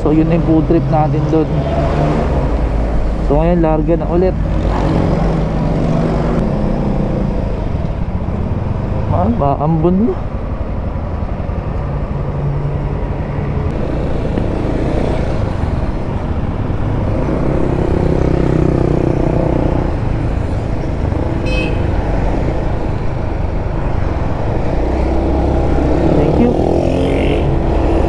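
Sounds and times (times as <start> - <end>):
traffic passing: 0.0 - 28.0.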